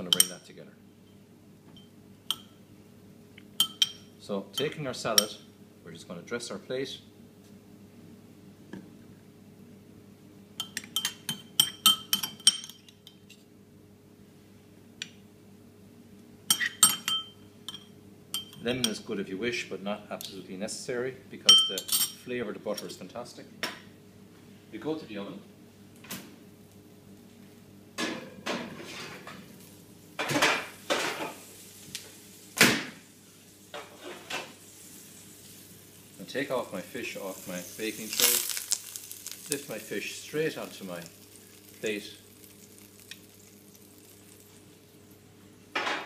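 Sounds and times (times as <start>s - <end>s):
metal spoon clinking on china: 3.6s - 5.3s.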